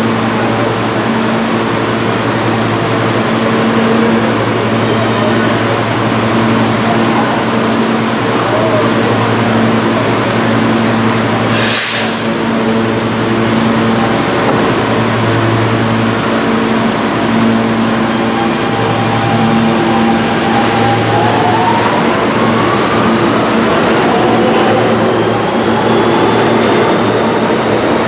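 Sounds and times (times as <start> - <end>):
subway train equipment humming: 0.0 - 28.0
sharp hiss of air: 11.1 - 12.3.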